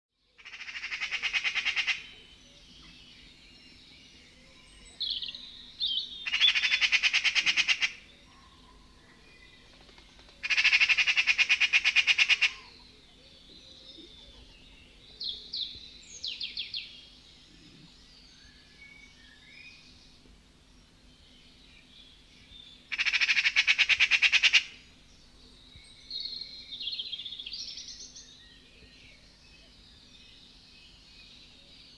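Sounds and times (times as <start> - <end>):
soft bird calls: 4.3 - 20.3, 21.1 - 30.1.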